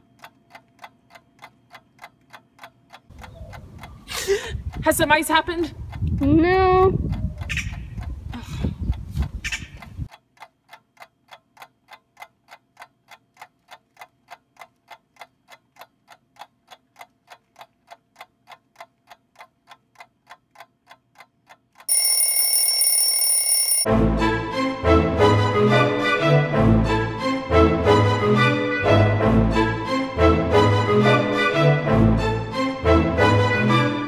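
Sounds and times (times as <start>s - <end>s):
clock ticking: 0.0s - 4.0s, 10.0s - 23.9s
alarm clock ringing: 21.9s - 23.9s
music: 23.9s - 34.0s.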